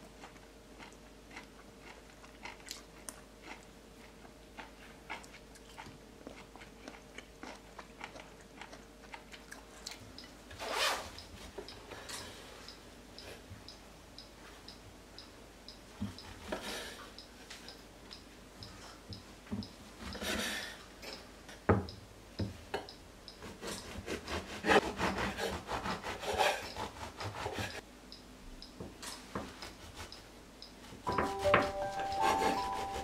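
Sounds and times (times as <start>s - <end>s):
gentle background music: 31.1s - 33.0s.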